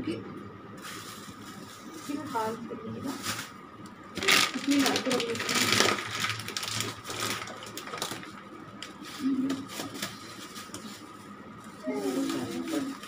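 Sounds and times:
plastic packet crinkling: 4.2s - 9.0s.

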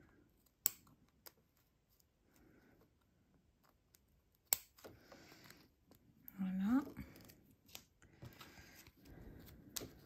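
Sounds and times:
small scissors snipping plastic: 0.4s - 1.4s, 3.6s - 4.9s.

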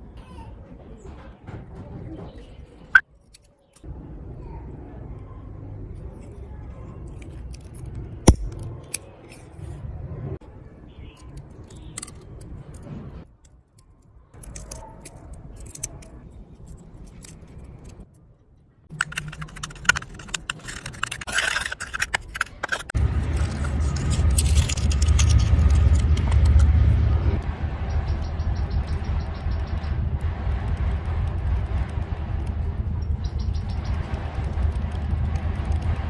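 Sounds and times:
metal tool scraping in metal cup: 18.9s - 26.1s
low rubbing: 18.9s - 36.0s.

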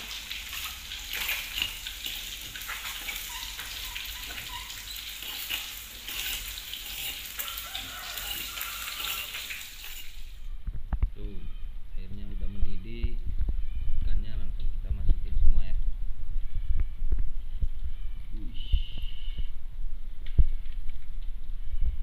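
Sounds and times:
liquid sizzling in a pan: 0.0s - 10.5s
metal spoon scratching stone: 3.1s - 10.2s.

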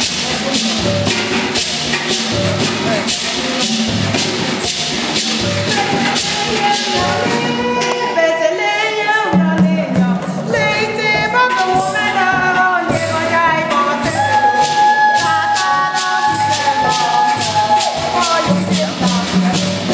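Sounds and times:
hand drums: 0.0s - 19.9s
rattling percussion: 0.0s - 19.9s
women singing together: 3.1s - 19.9s.

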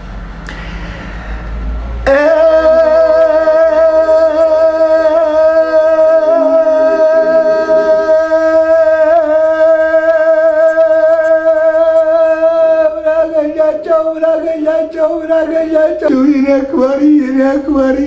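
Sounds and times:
lower accompanying line: 2.0s - 10.4s
man singing long high note: 2.1s - 18.0s.

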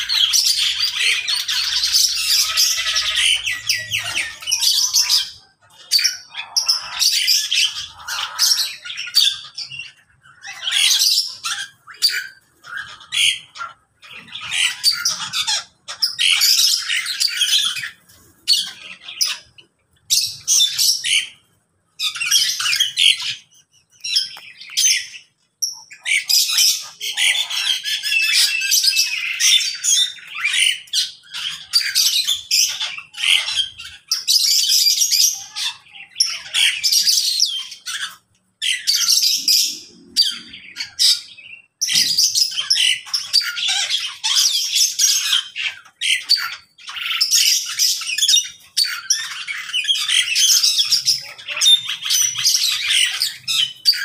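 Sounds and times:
birds chirping and squawking: 0.0s - 54.0s.

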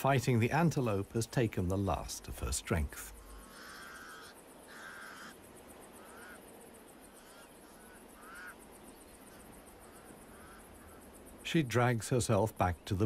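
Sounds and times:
crows calling: 3.0s - 11.4s.

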